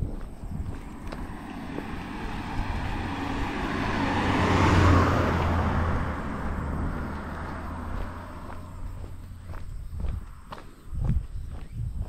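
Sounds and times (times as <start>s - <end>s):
car driving past: 0.6s - 9.6s.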